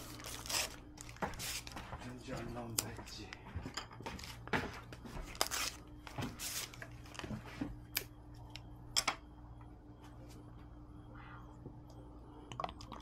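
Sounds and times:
packaging rustling and crinkling: 0.0 - 2.0, 4.2 - 7.4
faint steady hum: 0.0 - 13.0.

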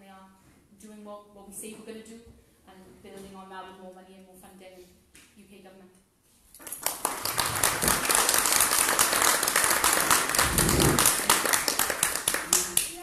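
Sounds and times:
audience applause: 6.8 - 13.0.

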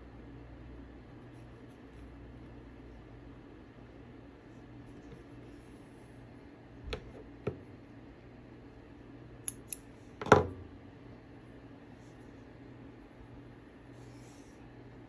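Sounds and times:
thread snippers snipping: 9.5 - 9.9.

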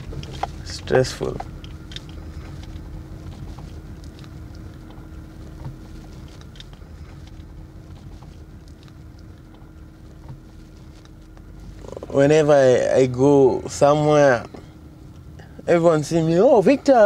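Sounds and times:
car engine and road rumble: 0.0 - 17.0
faint steady hum: 0.0 - 17.0.

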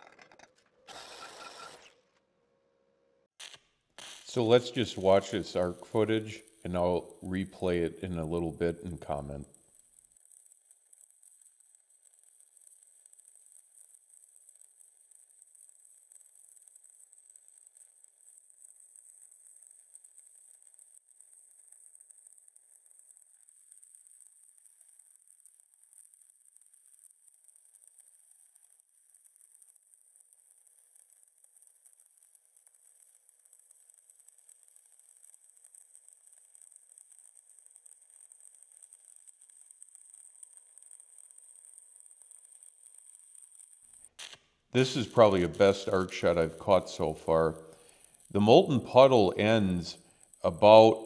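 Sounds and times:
faint welding arc crackle: 3.3 - 51.0
welding arc crackling hiss: 3.4 - 9.6.

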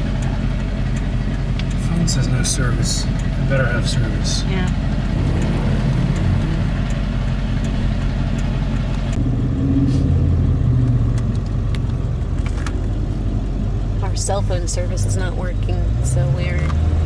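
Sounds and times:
truck engine and road noise: 0.0 - 17.0.

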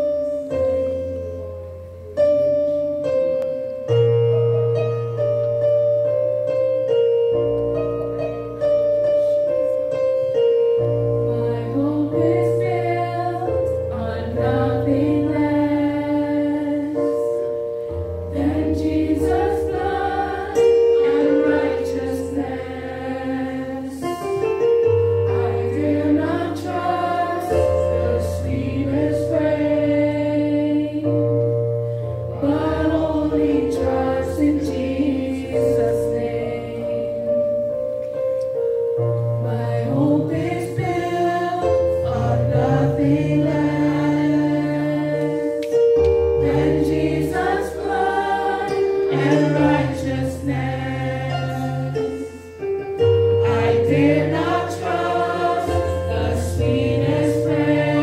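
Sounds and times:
electric keyboard chords: 0.0 - 58.0
people singing worship song: 11.2 - 31.3, 32.3 - 37.5, 39.4 - 58.0.

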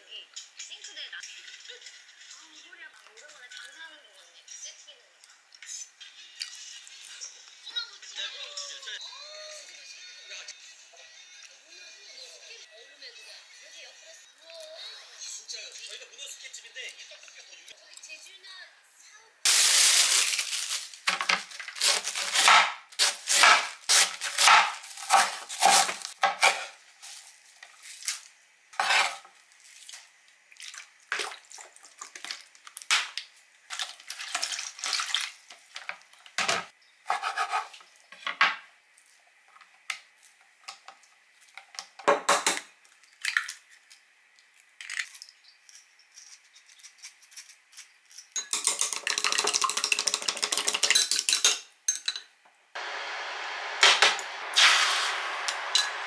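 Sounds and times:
knife chopping on wooden board: 21.8 - 26.7
clinks and knocks of kitchenware: 48.3 - 52.3.

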